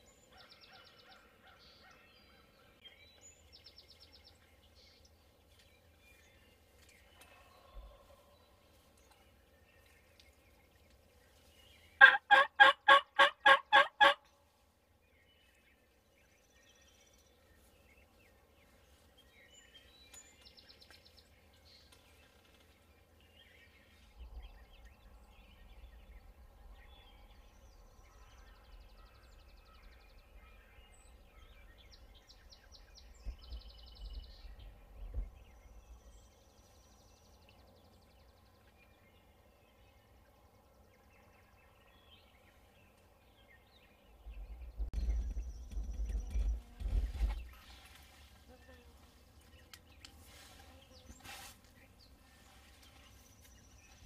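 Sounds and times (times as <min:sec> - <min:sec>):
turkey gobbling: 0:12.0 - 0:14.2.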